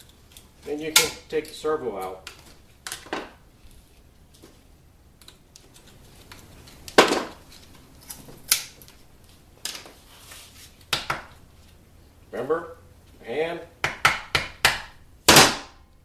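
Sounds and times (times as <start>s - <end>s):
hand tools being handled: 0.0s - 10.9s.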